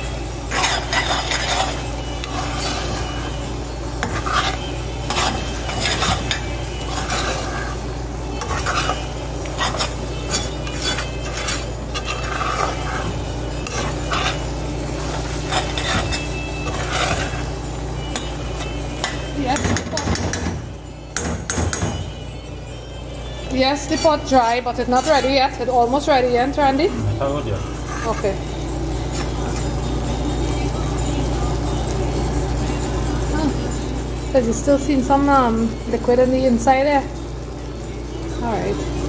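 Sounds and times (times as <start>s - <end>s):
light sizzle: 0.0s - 21.0s, 23.2s - 39.0s
metal spoon scraping pot: 0.5s - 3.3s, 4.0s - 20.1s, 23.8s - 25.7s, 27.6s - 28.4s
steady low hum: 22.2s - 39.0s.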